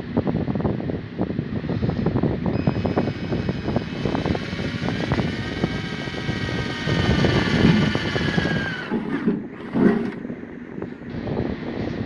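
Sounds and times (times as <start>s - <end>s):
electric drill boring into metal: 2.5s - 10.2s.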